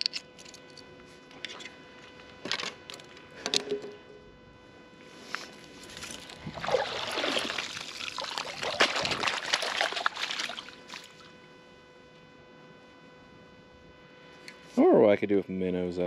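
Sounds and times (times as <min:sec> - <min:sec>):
water splashing and dribbling: 0:06.4 - 0:11.2.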